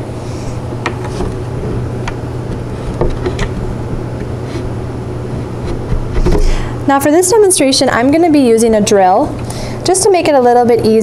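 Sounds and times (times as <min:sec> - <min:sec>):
steady low hum: 0:00.0 - 0:11.0
furniture panels clicking and tapping: 0:00.8 - 0:04.6.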